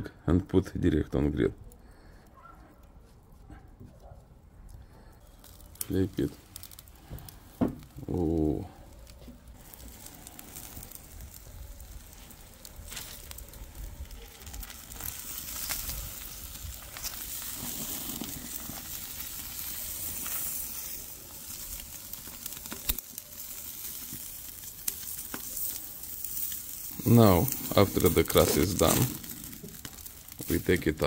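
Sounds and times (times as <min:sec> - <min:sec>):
meat sizzling on a grill: 0:05.2 - 0:31.0.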